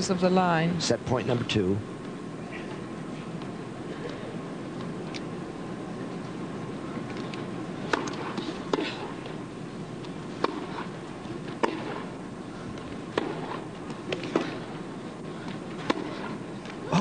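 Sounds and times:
arena hum: 0:00.0 - 0:17.0
racket hitting tennis ball: 0:07.8 - 0:09.4, 0:10.3 - 0:12.2, 0:12.8 - 0:14.7, 0:15.5 - 0:16.8.

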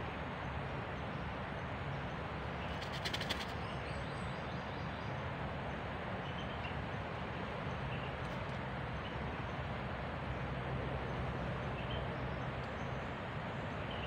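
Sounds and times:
forest background noise: 0:00.0 - 0:14.0
rapid sharp clicks: 0:02.8 - 0:03.5.

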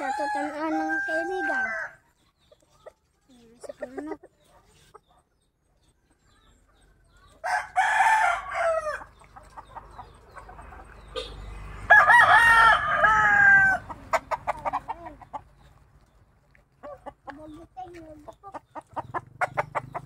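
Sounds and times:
rooster crowing: 0:00.0 - 0:02.0, 0:07.4 - 0:09.1, 0:11.9 - 0:13.9.

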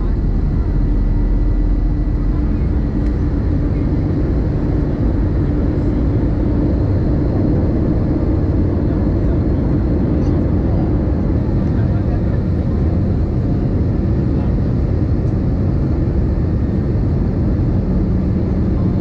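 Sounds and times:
aircraft engine drone: 0:00.0 - 0:19.0
steady hum: 0:00.0 - 0:19.0.

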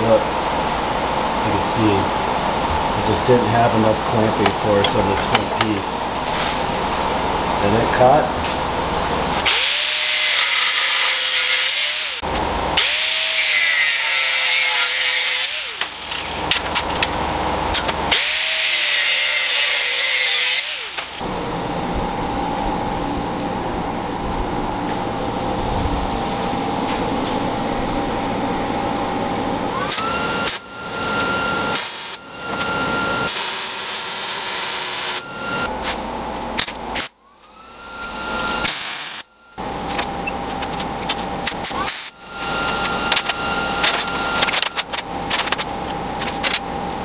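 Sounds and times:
quiet machine hum: 0:00.0 - 0:47.0
power tool whining: 0:09.4 - 0:17.0, 0:18.1 - 0:21.4, 0:29.6 - 0:35.7, 0:37.0 - 0:45.5.

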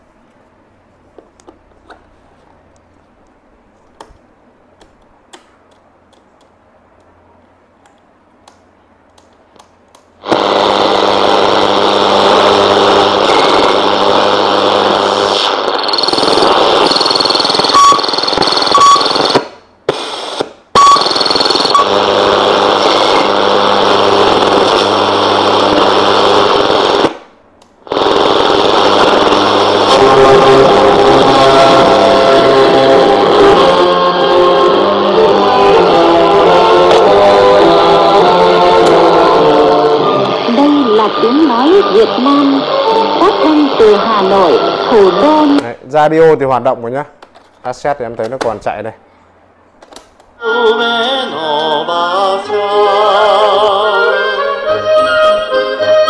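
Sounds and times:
radio static: 0:10.2 - 0:27.2, 0:27.9 - 0:45.8.

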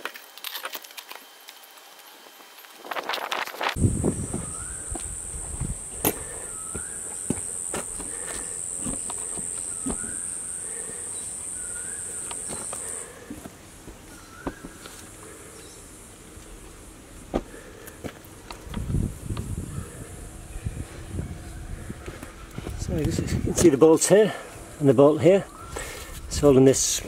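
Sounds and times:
high-pitched insect buzz: 0:01.3 - 0:13.2
bird rising call: 0:03.8 - 0:13.2.

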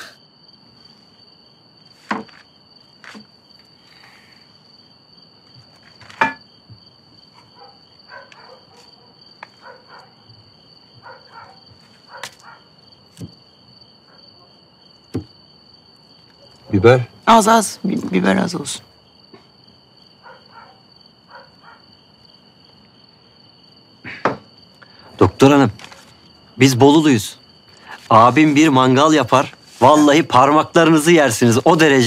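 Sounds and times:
crickets chirring: 0:00.0 - 0:32.0
paper wrapping rustling and clicking: 0:25.6 - 0:26.2.

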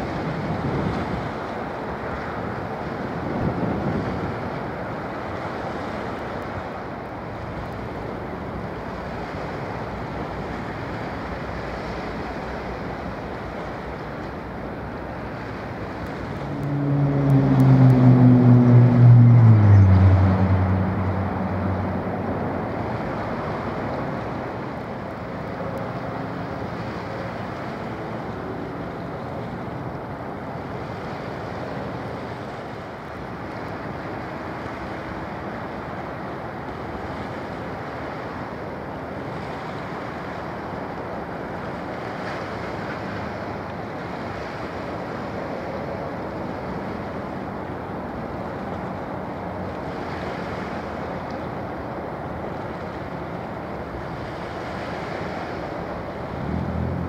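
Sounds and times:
wind buffeting microphone: 0:00.0 - 0:05.2
engine drone: 0:00.0 - 0:38.5, 0:39.1 - 0:57.0
waves washing: 0:00.0 - 0:57.0.

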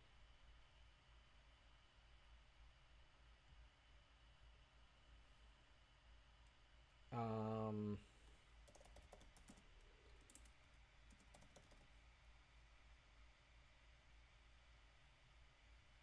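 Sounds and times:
keyboard key clicks: 0:08.7 - 0:11.8.

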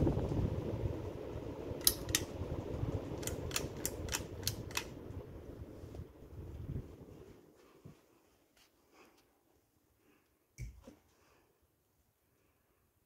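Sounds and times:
ceiling fan whirring: 0:00.0 - 0:13.0
sharp clicks: 0:03.2 - 0:04.9.

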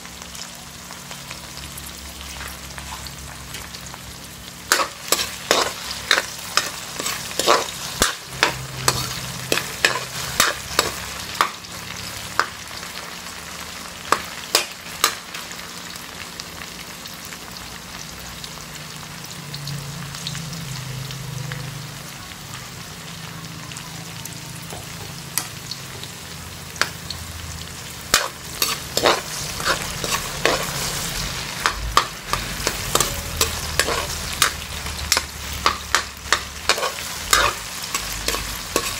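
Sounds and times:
vegetables sizzling in oil: 0:00.0 - 0:38.9
metal spatula scraping a wok: 0:04.7 - 0:11.6, 0:28.0 - 0:38.9.

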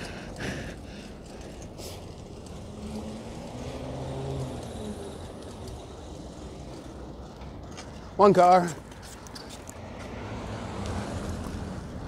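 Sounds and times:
traffic rumble: 0:00.0 - 0:12.0
passing vehicle engine: 0:01.1 - 0:07.7, 0:09.5 - 0:12.0.

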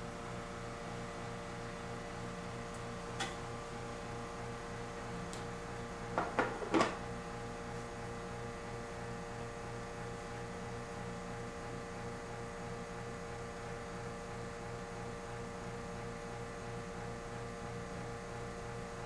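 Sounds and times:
espresso machine pump humming: 0:00.0 - 0:14.6.

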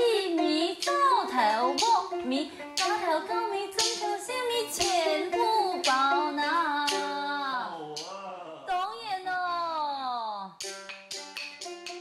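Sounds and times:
woman singing: 0:00.0 - 0:07.8
plucked lute: 0:00.0 - 0:08.1, 0:10.6 - 0:12.0
sharp percussive clicks: 0:00.8 - 0:02.1, 0:02.7 - 0:05.0, 0:05.8 - 0:06.2, 0:06.8 - 0:07.2, 0:10.6 - 0:12.0.

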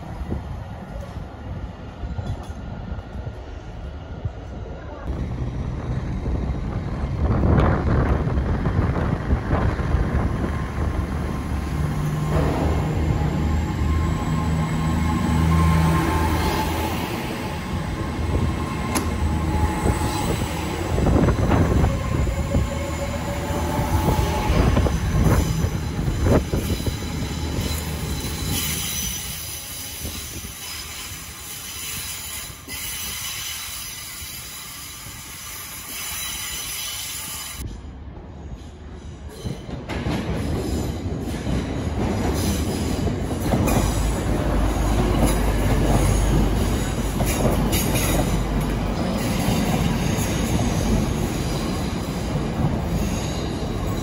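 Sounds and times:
diesel train passing: 0:00.0 - 0:54.0
train wheels squealing: 0:12.1 - 0:37.8, 0:38.5 - 0:54.0.

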